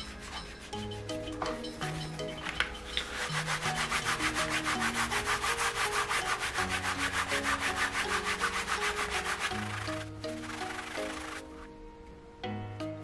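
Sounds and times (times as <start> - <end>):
soft background music: 0.0 - 13.0
pad rubbing leather: 3.1 - 11.5.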